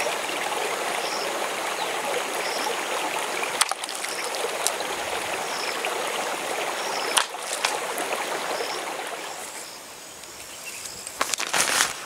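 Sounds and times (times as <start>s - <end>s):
stream splashing over stones: 0.0s - 9.6s.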